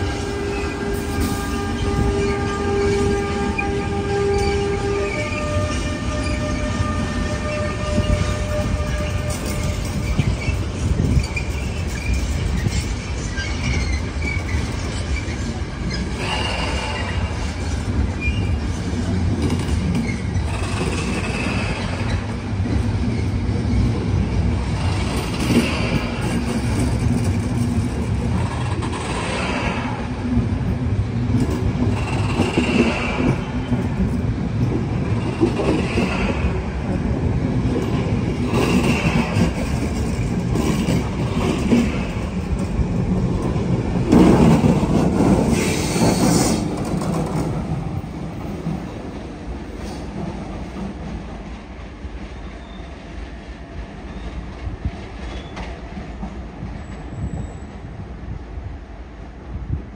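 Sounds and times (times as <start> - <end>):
train wheels rumbling on rail: 0.0 - 59.9
wheel squeals: 4.3 - 18.8.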